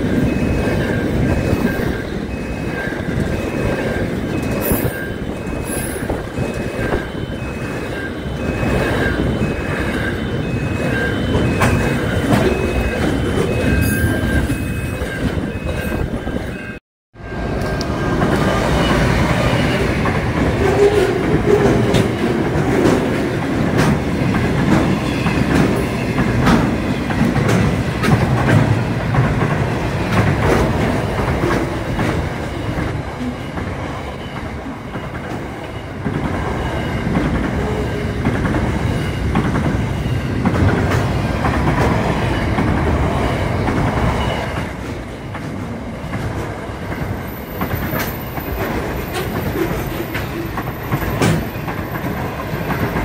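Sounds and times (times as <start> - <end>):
freight train rumbling past: 0.0 - 53.0
wheels clicking over rail joints: 17.6 - 53.0.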